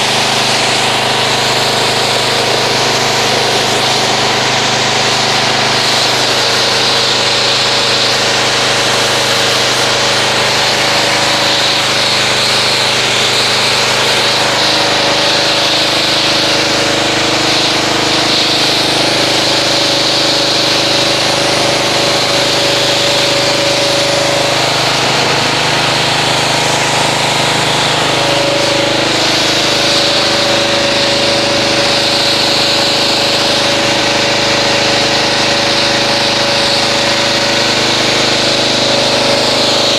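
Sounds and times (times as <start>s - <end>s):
pressure washer motor hum: 0.0s - 39.9s
pressure washer spray hissing: 0.0s - 39.9s.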